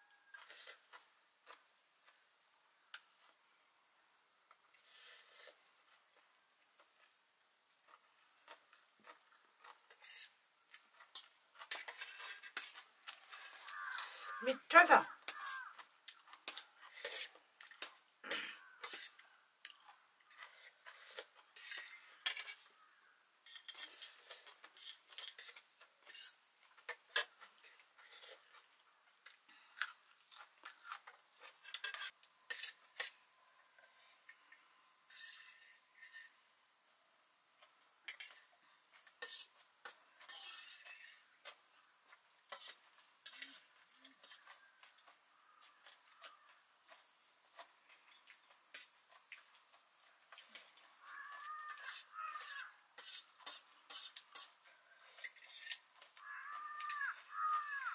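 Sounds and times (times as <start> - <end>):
cutlery clinking on steel plates: 42.5 - 44.6.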